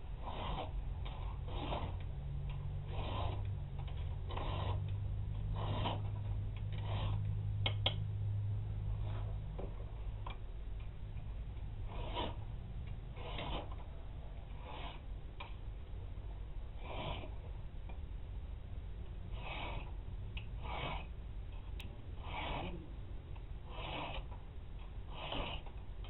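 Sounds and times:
low steady hum: 0.0s - 26.0s
file rasping on steel: 0.2s - 8.0s, 11.8s - 15.1s, 16.7s - 17.5s, 19.3s - 21.2s, 22.1s - 25.8s.

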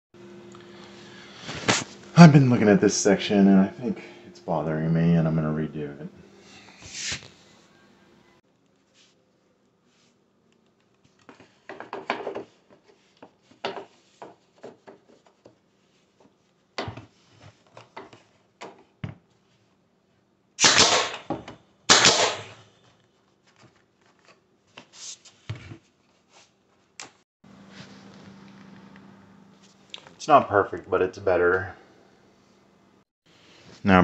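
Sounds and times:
knocks and clicks of handling wood: 11.2s - 15.6s
nail gun shots: 20.6s - 21.3s, 21.9s - 22.6s.

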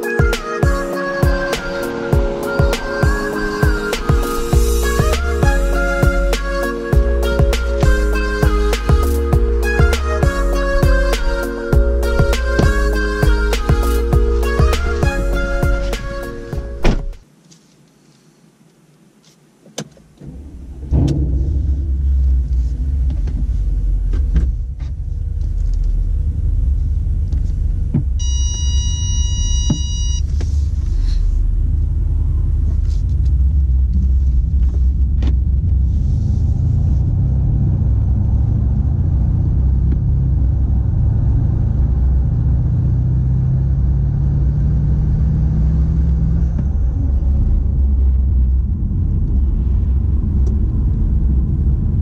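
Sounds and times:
car engine rumbling: 0.0s - 17.3s, 19.6s - 52.0s
electronic beep: 28.2s - 30.2s.

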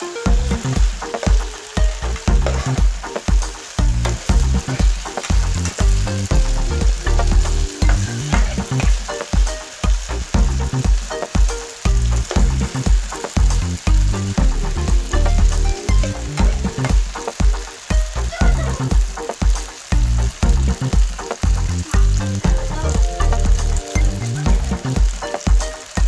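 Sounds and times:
food sizzling in oil: 0.0s - 26.0s
spatula scraping a pan: 2.4s - 2.8s.

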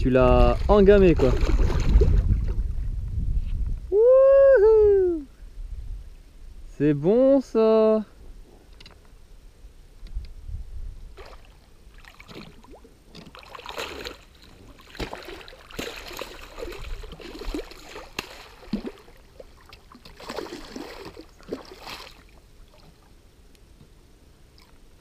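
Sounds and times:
fish thrashing and splashing water: 0.5s - 2.6s, 11.2s - 23.0s.

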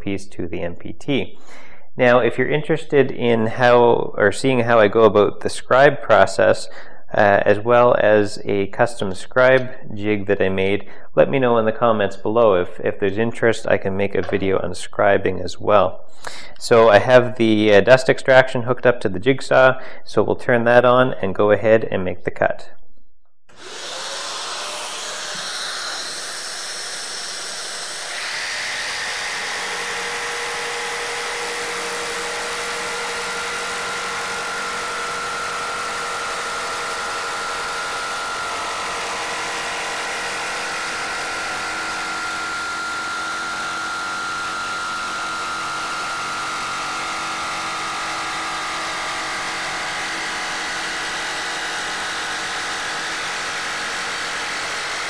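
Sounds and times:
dust extractor hissing: 23.5s - 55.0s
jigsaw cutting plywood: 23.5s - 55.0s.

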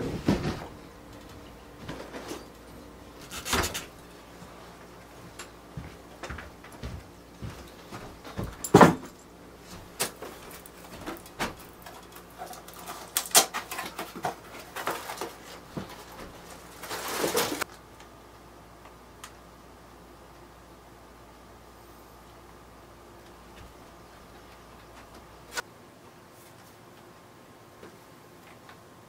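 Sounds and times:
footsteps: 4.3s - 11.8s.

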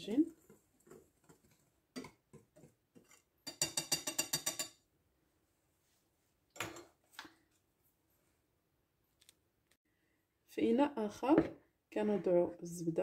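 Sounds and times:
metal utensil clinking on bowl: 3.1s - 4.8s.

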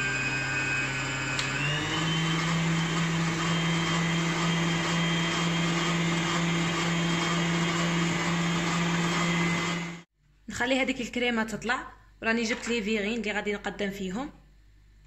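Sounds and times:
electric stand mixer whisking: 0.0s - 10.1s.

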